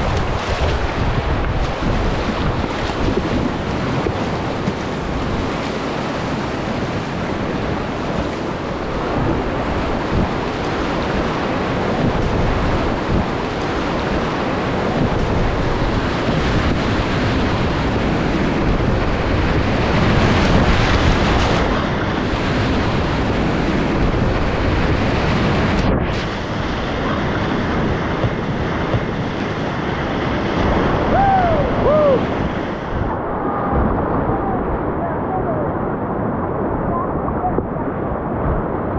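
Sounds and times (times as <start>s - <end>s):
whitewater rushing and splashing: 0.0s - 38.9s
wind on microphone: 0.0s - 38.9s.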